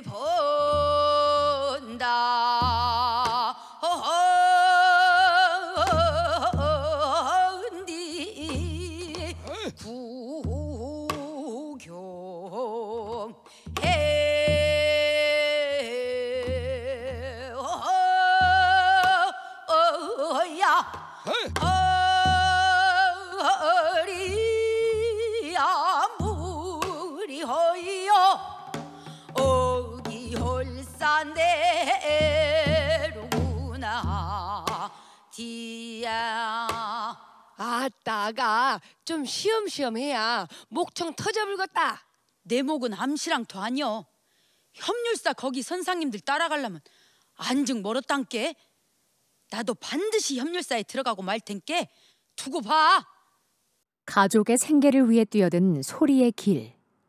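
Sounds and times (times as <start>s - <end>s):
woman singing with vibrato: 0.0s - 44.0s, 49.6s - 53.2s
singer breathing: 3.6s - 3.8s, 13.5s - 13.8s, 21.0s - 21.4s, 28.8s - 29.4s, 34.9s - 35.3s, 44.2s - 44.7s, 46.8s - 47.4s, 51.9s - 52.3s.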